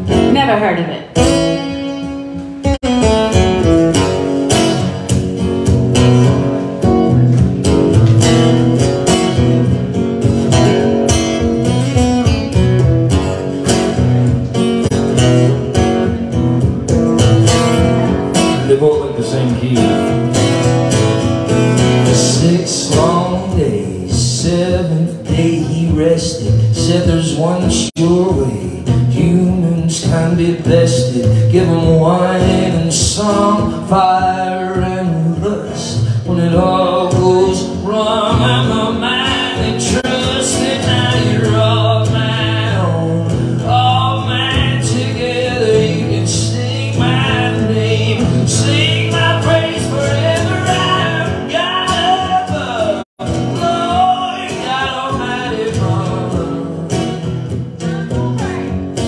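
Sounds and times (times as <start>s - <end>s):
acoustic guitars: 0.0s - 59.0s
person singing: 22.0s - 56.8s.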